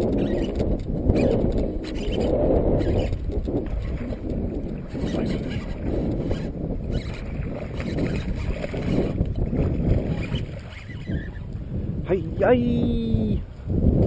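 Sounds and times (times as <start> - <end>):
wind buffeting microphone: 0.0 - 14.0
water splashing: 2.9 - 11.5.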